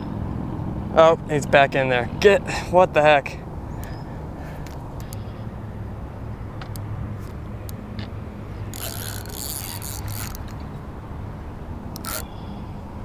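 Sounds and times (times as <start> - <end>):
fishing reel rasping: 8.7 - 10.6, 12.0 - 12.4
fishing reel ticking: 8.7 - 10.6, 12.0 - 12.4.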